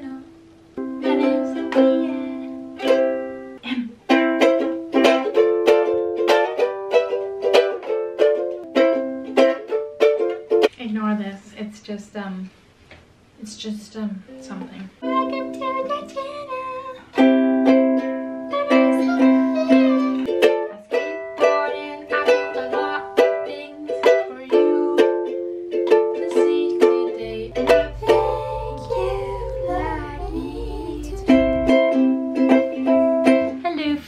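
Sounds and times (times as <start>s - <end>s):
ukulele strummed chords: 0.0s - 10.7s, 15.0s - 34.0s
woman singing: 1.0s - 2.7s, 18.5s - 31.8s, 32.5s - 34.0s.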